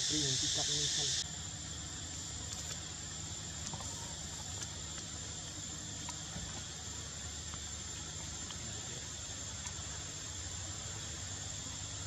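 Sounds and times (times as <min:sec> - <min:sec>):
high-pitched insect drone: 0:00.0 - 0:12.0
faint ticks: 0:03.6 - 0:05.2.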